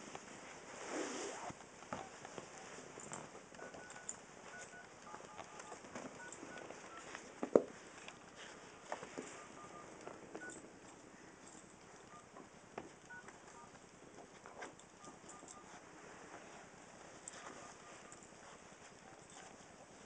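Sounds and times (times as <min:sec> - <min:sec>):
soft scuffs of paws and toy: 0:05.3 - 0:10.1, 0:14.2 - 0:20.0.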